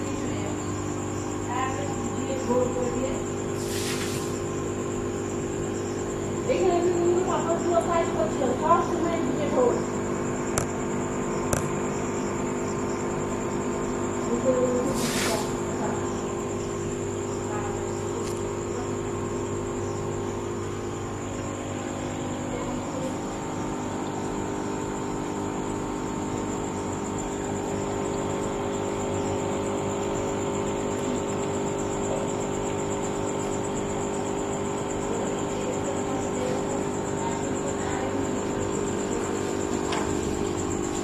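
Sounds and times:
bubbling hiss: 0:00.0 - 0:06.2, 0:14.7 - 0:16.7
aquarium pump humming: 0:00.0 - 0:41.0.

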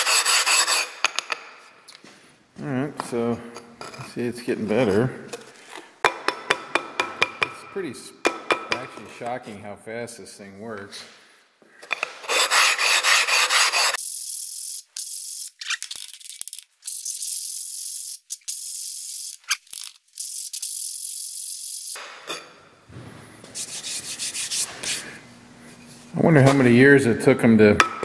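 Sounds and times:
stone scraping on stone: 0:11.9 - 0:14.0.

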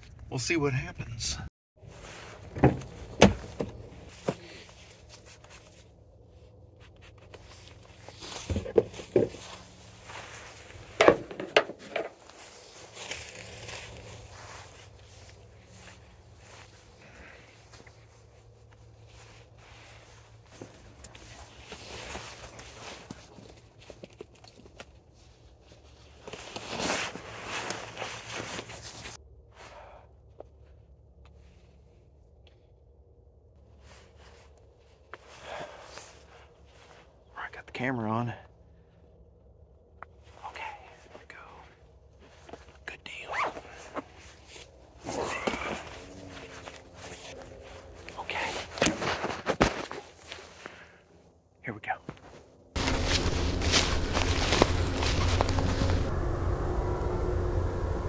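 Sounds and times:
rustling of gear: 0:01.8 - 0:29.2, 0:42.1 - 0:51.2, 0:52.1 - 0:58.0.

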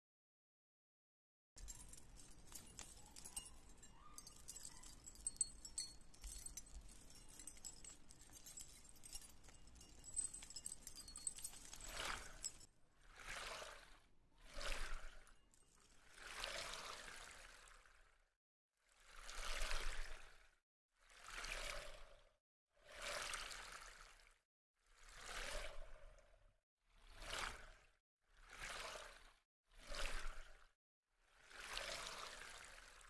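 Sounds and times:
metal keychains jingling: 0:01.6 - 0:12.7.

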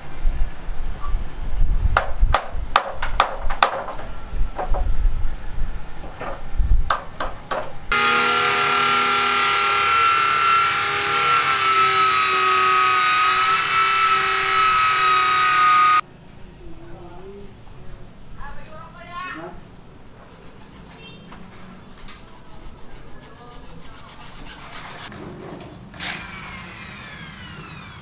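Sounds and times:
knocks on wooden planks: 0:02.0 - 0:04.9
motor whine with hiss: 0:26.0 - 0:28.0.

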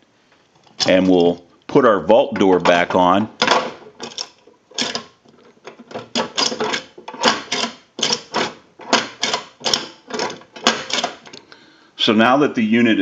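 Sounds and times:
metal door locking with key: 0:03.4 - 0:11.4.

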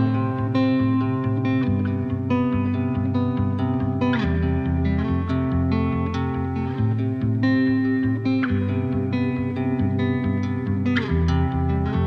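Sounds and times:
plucked acoustic guitar: 0:00.0 - 0:12.0.

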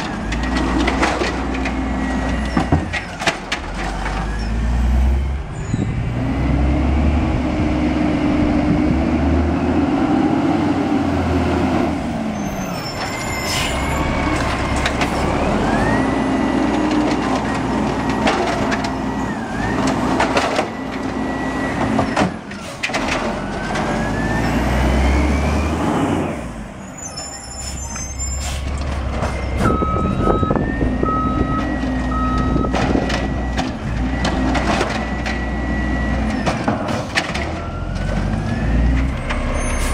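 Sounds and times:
diesel engine revving: 0:03.5 - 0:26.9, 0:28.1 - 0:39.9
short beeping: 0:29.4 - 0:33.6.

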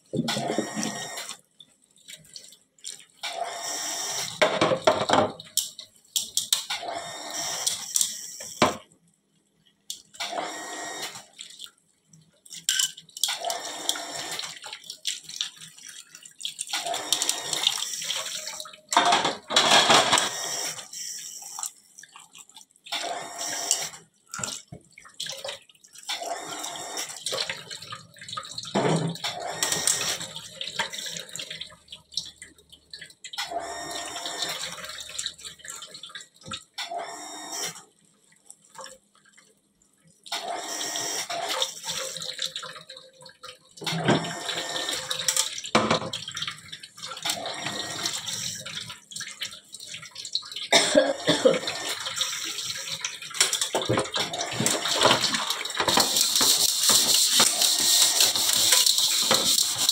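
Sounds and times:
tap water running into sink: 0:00.1 - 0:01.5, 0:02.2 - 0:08.9, 0:09.9 - 0:38.0, 0:40.2 - 0:59.9
dishes scrubbed: 0:50.8 - 0:59.9.

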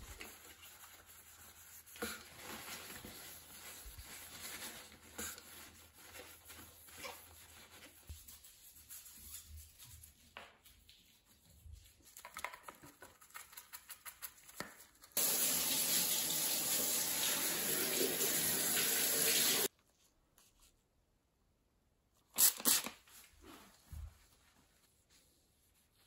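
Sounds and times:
brush scrubbing a rim: 0:00.0 - 0:13.3.

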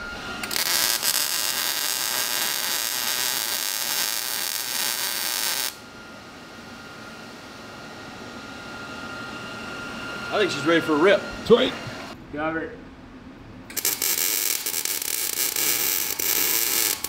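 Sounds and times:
welder arc crackling: 0:00.0 - 0:05.8, 0:13.7 - 0:17.0
steady background hum: 0:00.0 - 0:17.0.

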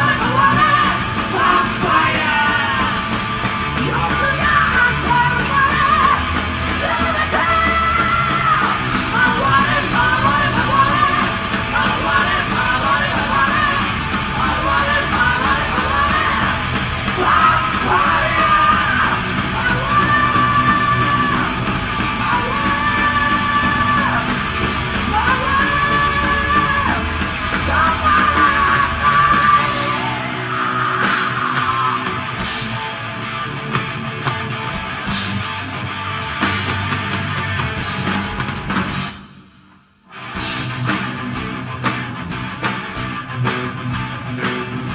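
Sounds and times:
yelled vocals: 0:00.0 - 0:33.6
heavy metal band playing live: 0:00.0 - 0:44.9.

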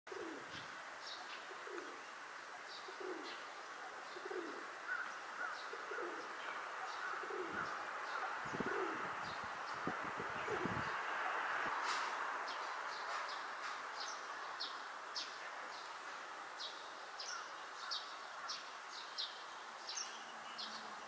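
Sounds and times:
pigeon cooing: 0:00.1 - 0:00.6, 0:01.5 - 0:02.0, 0:02.8 - 0:09.4, 0:10.3 - 0:11.4.

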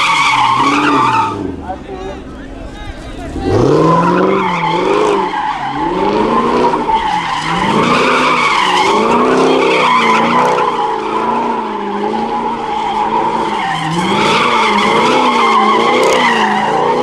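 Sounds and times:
car engine revving: 0:00.0 - 0:17.0
tyres screeching: 0:00.0 - 0:17.0.

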